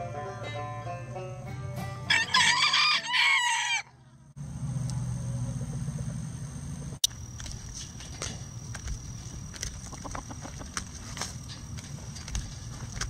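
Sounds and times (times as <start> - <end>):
background music: 0.0 - 2.6
rooster crowing: 2.1 - 4.0.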